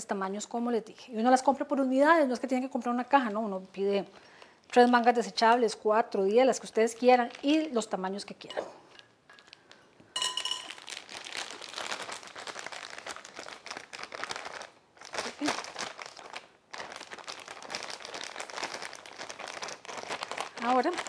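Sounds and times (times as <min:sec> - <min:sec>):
plastic bag crinkling: 0:06.6 - 0:08.1, 0:09.0 - 0:21.0.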